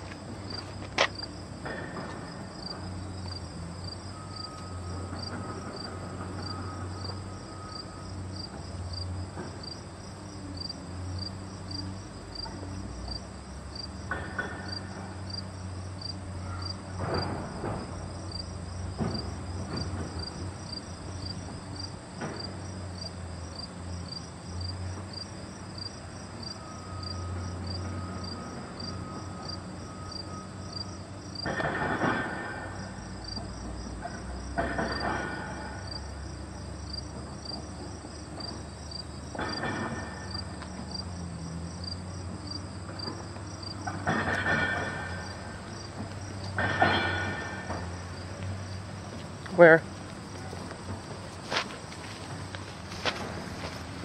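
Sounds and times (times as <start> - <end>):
knocks and rustles: 0.0 - 3.4, 16.9 - 22.8, 31.4 - 36.3, 36.9 - 54.0
crickets chirping: 0.0 - 54.0.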